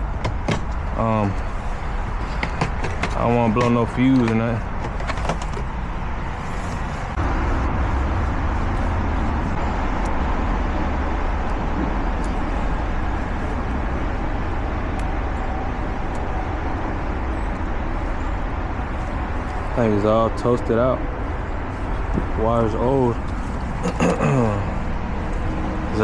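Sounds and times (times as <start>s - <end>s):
low rumble: 5.6s - 19.7s.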